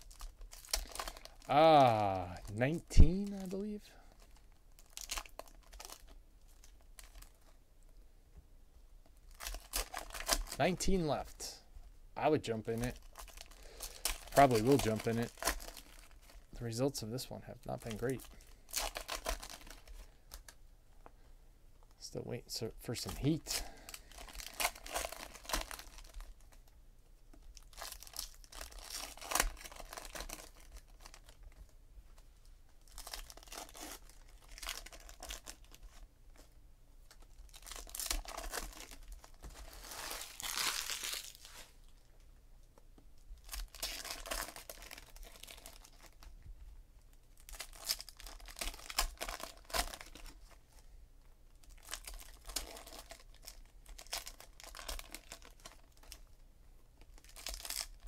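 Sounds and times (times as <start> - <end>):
wrappers tearing and crinkling: 0.0 - 7.6, 9.3 - 11.6, 12.5 - 20.6, 23.0 - 26.7, 27.4 - 31.6, 32.8 - 36.0, 37.1 - 42.0, 43.4 - 46.3, 47.4 - 50.6, 51.6 - 56.4, 57.0 - 58.0.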